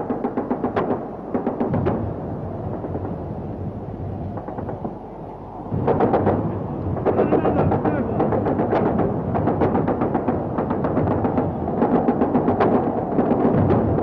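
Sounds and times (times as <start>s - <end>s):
anti-aircraft gunfire bursts: 5.8s - 14.0s.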